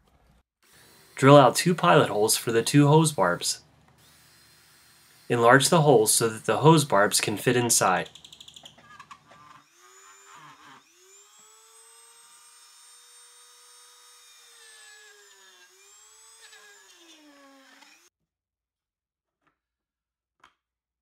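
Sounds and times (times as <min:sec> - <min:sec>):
rotary tool grinding plastic: 0:08.1 - 0:11.3.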